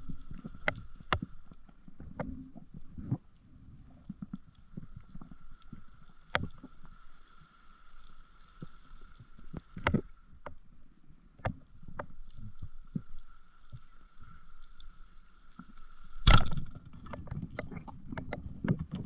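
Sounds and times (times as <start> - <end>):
muffled underwater knocks and clicks: 0.0 - 6.8, 8.6 - 10.7, 11.3 - 13.8, 15.5 - 19.0
low water rumble: 0.0 - 19.0.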